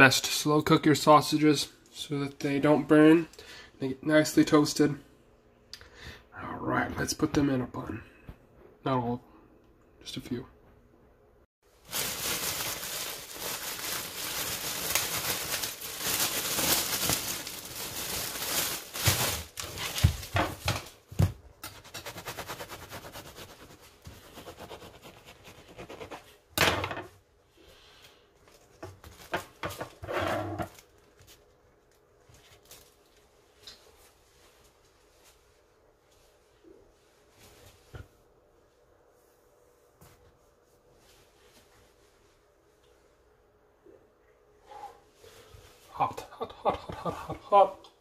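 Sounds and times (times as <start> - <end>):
plastic bag crinkling: 11.7 - 21.0.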